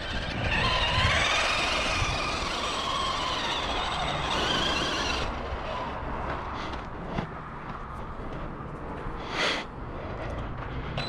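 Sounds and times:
electric motor whining: 0.0s - 6.0s.

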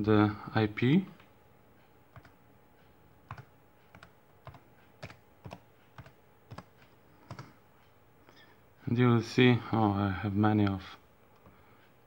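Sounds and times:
faint keyboard typing: 1.1s - 8.4s, 10.6s - 11.9s.

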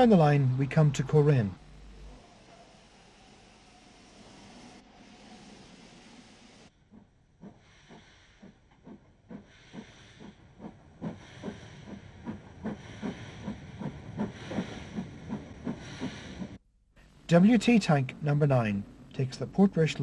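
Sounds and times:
steam hiss: 2.2s - 6.7s
steam locomotive chuffing: 2.3s - 16.6s.

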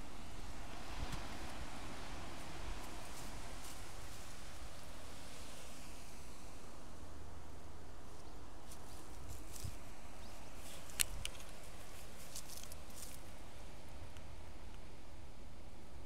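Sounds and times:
outdoor hiss: 0.0s - 16.0s
dry crackles and rustles: 8.1s - 14.2s.

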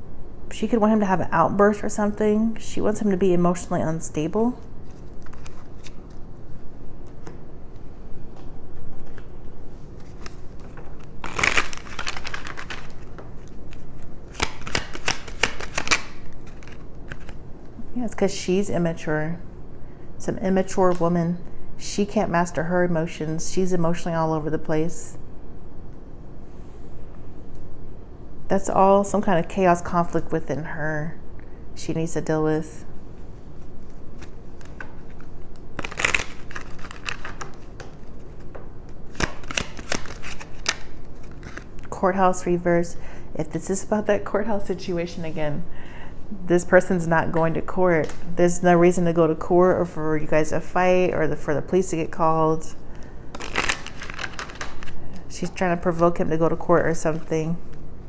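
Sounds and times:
cards shuffling: 4.8s - 6.2s, 8.8s - 17.4s, 33.6s - 41.9s, 53.3s - 55.2s.

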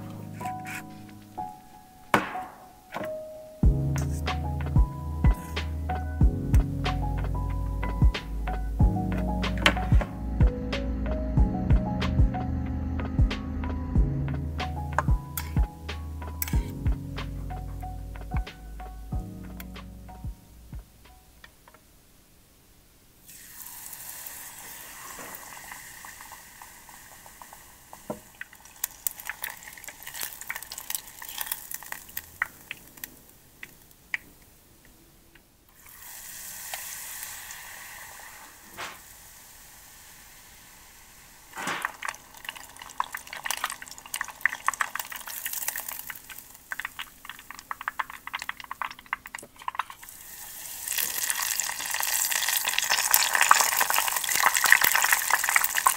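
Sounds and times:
batter sizzling in hot oil: 23.2s - 33.9s, 35.8s - 55.9s.

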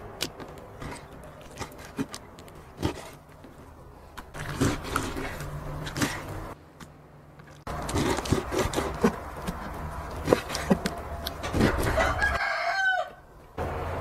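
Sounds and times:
rooster crowing: 11.8s - 13.3s.

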